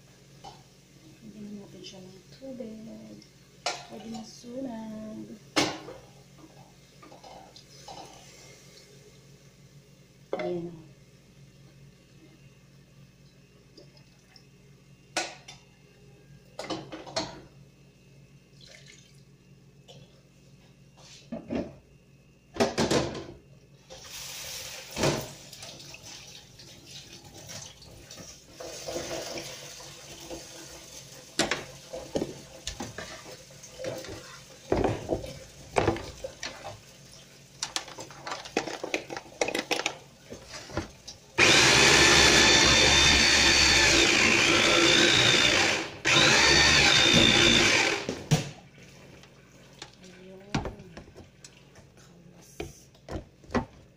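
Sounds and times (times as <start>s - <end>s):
water running from a tap: 18.6s - 19.2s, 24.0s - 32.7s.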